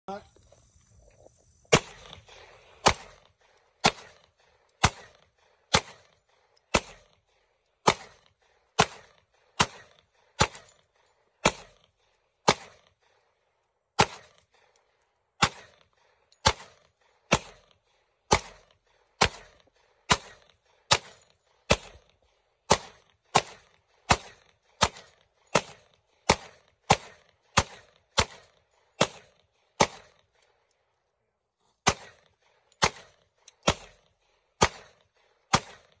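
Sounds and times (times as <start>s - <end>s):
handgun shots: 7.8s - 8.2s, 8.8s - 10.7s, 22.7s - 30.2s.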